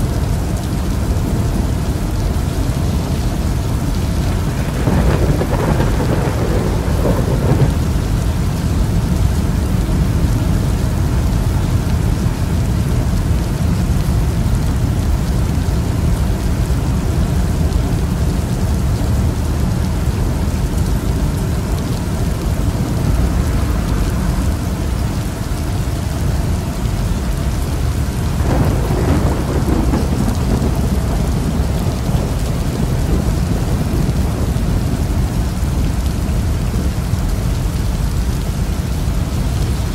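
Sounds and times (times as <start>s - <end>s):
heavy rain: 0.0s - 39.9s
low rumbling thunder: 3.9s - 12.8s, 27.2s - 37.0s.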